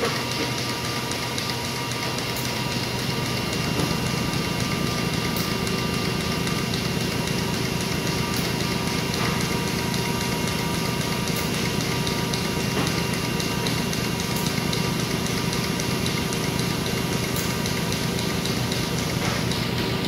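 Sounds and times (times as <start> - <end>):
machine mechanical hum with whine: 0.0 - 20.0.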